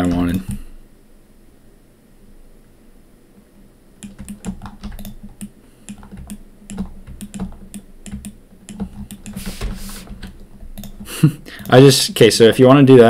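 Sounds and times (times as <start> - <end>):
keyboard keys clicking: 0.0 - 0.7, 4.0 - 11.8.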